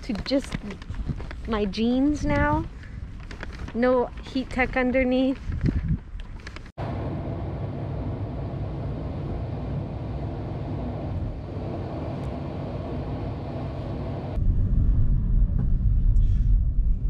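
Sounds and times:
van road and engine noise: 6.6 - 16.9
deep rumble: 6.8 - 17.0.

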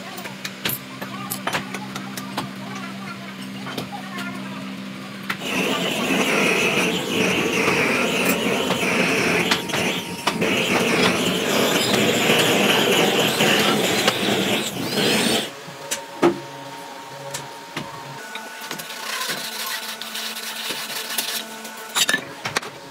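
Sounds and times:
gas torch flame rushing: 5.4 - 15.6.

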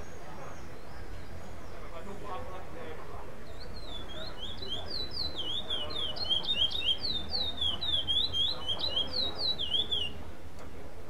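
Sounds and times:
finch singing whistled notes: 3.4 - 10.2.

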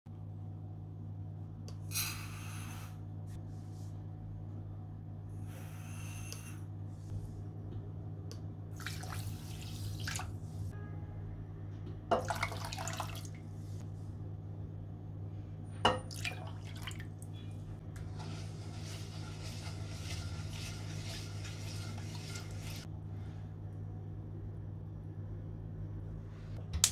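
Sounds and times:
steady low hum: 0.1 - 12.2, 13.3 - 26.9
liquid dripping: 15.9 - 17.3
short scrapes: 18.0 - 22.9.

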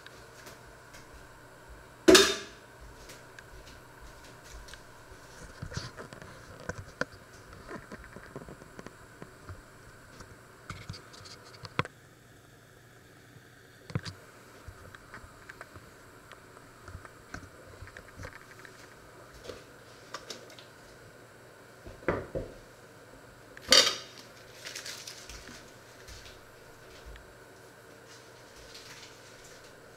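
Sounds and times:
sharp metal clank: 2.1 - 2.6
foil wrapper crinkling: 24.1 - 27.0, 28.1 - 29.8.

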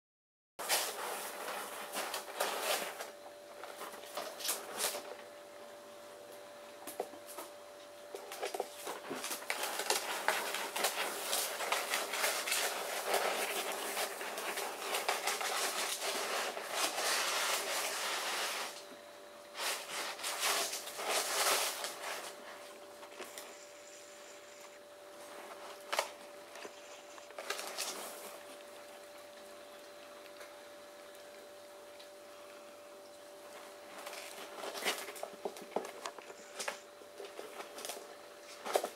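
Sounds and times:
rice grains hissing and rattling: 0.6 - 3.2, 8.7 - 29.7.

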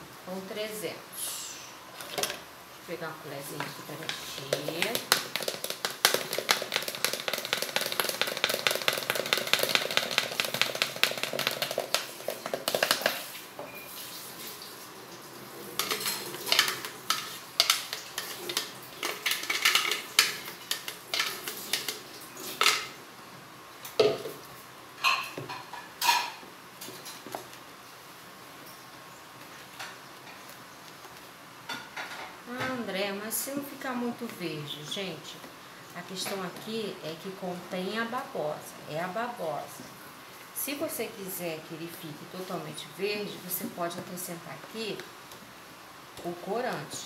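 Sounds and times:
spoon stirring in plastic jar: 3.6 - 13.4, 15.8 - 22.0.

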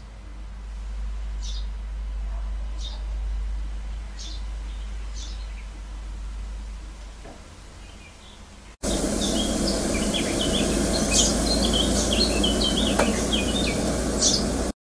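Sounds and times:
small songbirds chirping: 1.4 - 1.8, 4.1 - 5.8, 7.8 - 14.7
loud steady background rush: 8.8 - 14.7.

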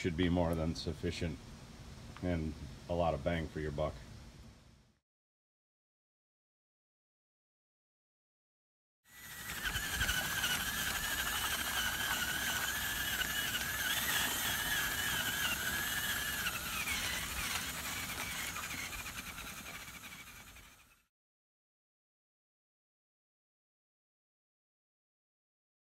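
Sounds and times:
cordless drill motor whine: 9.1 - 21.1.

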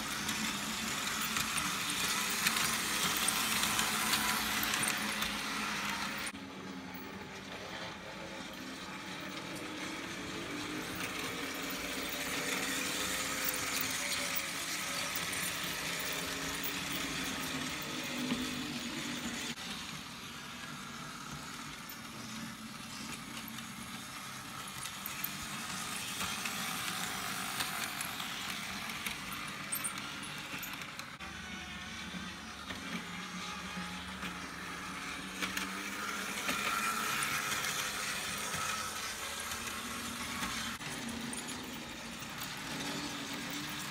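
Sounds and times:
wheels clicking over rails: 0.0 - 31.2
model trains whirring: 0.0 - 43.9.

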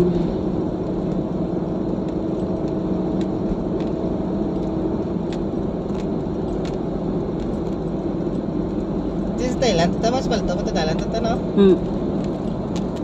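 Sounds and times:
car engine and tyre drone: 0.0 - 13.0
low hum: 0.0 - 13.0.

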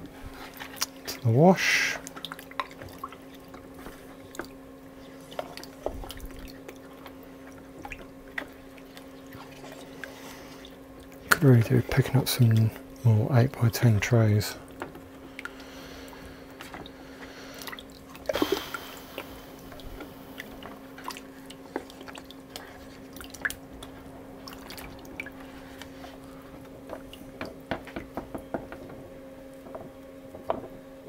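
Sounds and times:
steady low hum: 0.0 - 31.0
water splashing in a bucket: 0.4 - 12.9, 15.3 - 28.2.

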